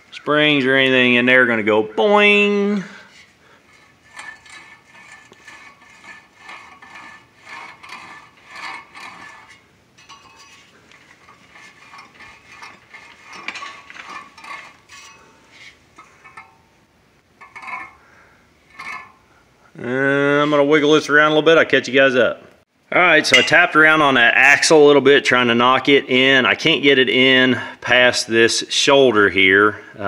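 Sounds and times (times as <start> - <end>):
rusty metal hub clicks and scrapes: 3.1 - 19.6, 23.3 - 23.9.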